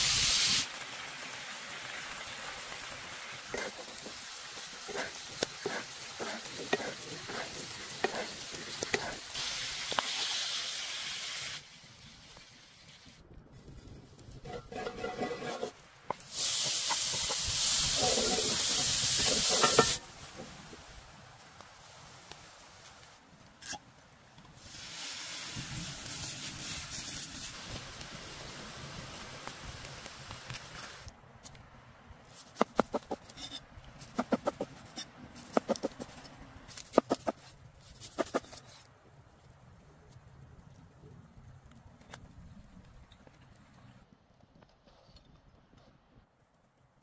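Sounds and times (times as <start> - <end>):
meat sizzling in hot fat: 0.0 - 12.9, 14.4 - 20.9, 24.6 - 31.0.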